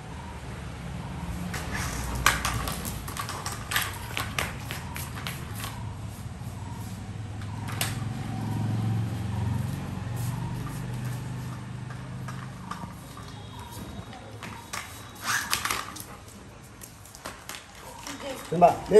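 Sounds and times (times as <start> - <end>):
plastic toy clattering on tiles: 1.6 - 5.8, 14.4 - 16.1.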